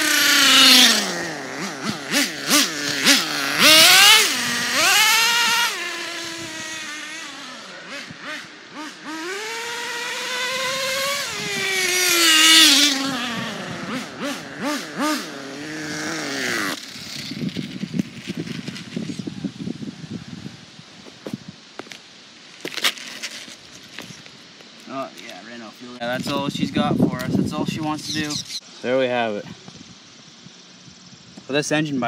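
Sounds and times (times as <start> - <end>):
model car engine revving: 0.0 - 17.8.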